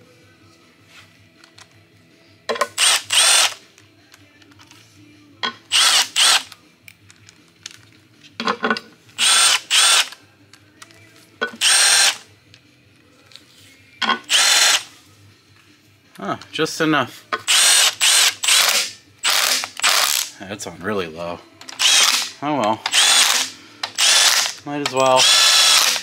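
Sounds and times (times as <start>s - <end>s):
power driver motor whine: 25.2s - 26.0s.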